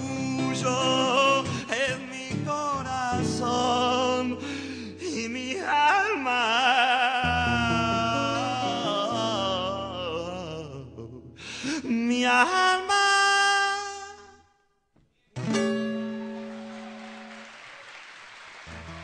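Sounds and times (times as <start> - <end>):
person singing: 0.0 - 14.4
acoustic guitar chord: 7.2 - 11.4, 15.4 - 17.4.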